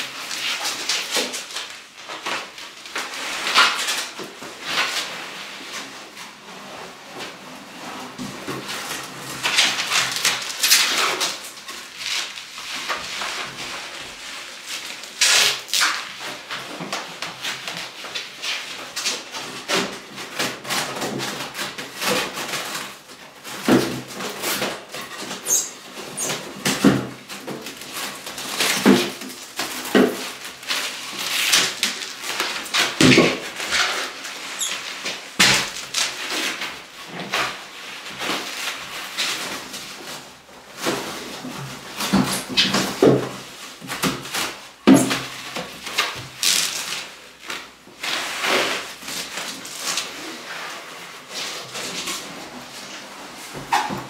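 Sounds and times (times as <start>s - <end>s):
short high squeals: 25.4s - 26.3s
stretch wrap crackling and rustling: 27.2s - 54.0s.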